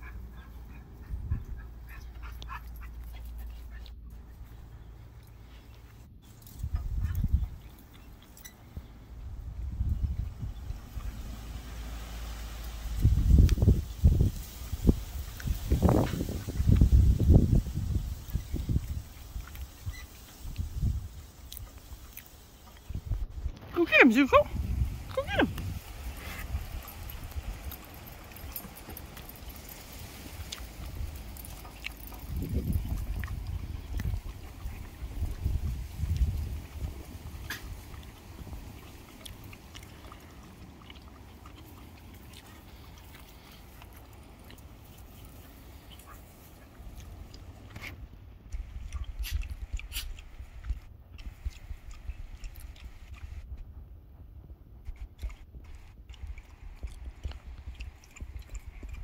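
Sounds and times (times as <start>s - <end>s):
wind rumble on microphone: 0.0s - 3.6s, 6.2s - 22.2s, 22.8s - 39.6s, 46.9s - 59.0s
dogs breathing: 0.0s - 9.2s, 24.8s - 59.0s.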